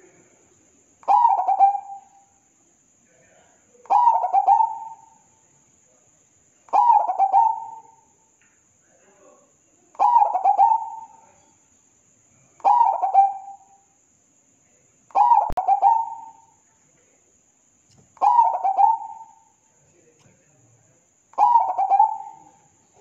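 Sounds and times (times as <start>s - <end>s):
dove cooing: 1.0s - 2.2s, 3.9s - 5.2s, 6.7s - 8.0s, 10.0s - 11.3s, 12.6s - 13.6s, 15.1s - 16.5s, 18.2s - 19.5s, 21.4s - 22.8s.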